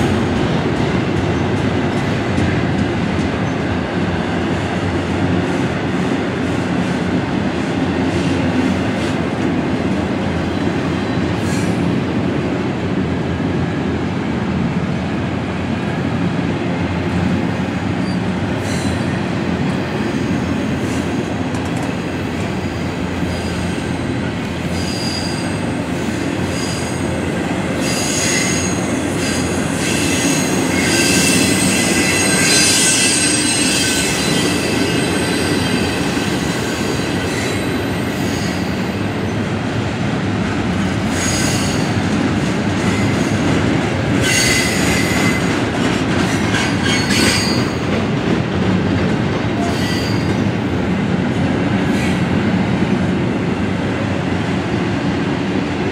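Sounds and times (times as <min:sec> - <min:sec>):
steel wheels rumbling on rail: 0:00.0 - 0:55.9
high-pitched wheel squeals: 0:29.8 - 0:36.2.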